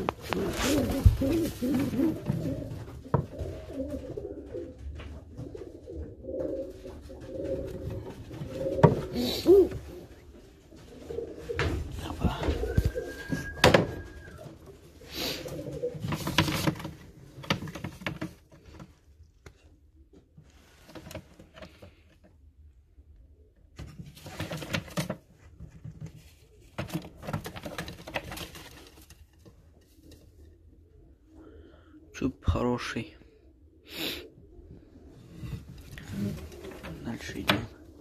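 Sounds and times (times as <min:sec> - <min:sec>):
pigeons cooing: 0:00.0 - 0:17.5, 0:29.9 - 0:32.2, 0:33.2 - 0:38.0
rustling: 0:00.0 - 0:19.7, 0:23.8 - 0:30.5.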